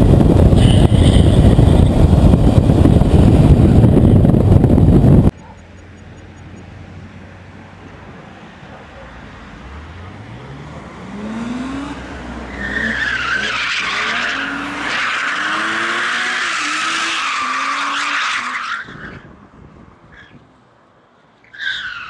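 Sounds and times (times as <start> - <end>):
car engine revving: 0.0 - 5.3, 9.4 - 17.8.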